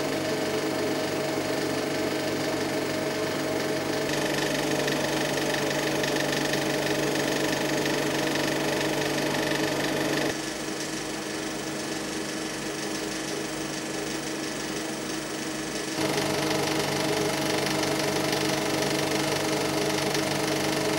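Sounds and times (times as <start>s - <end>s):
film projector whirring: 0.0s - 20.9s.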